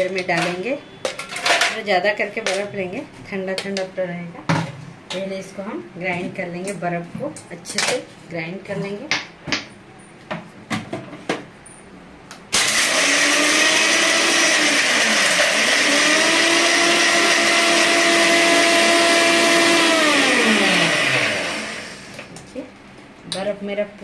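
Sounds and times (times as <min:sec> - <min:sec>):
mixer grinder crushing ice: 0:12.6 - 0:22.2.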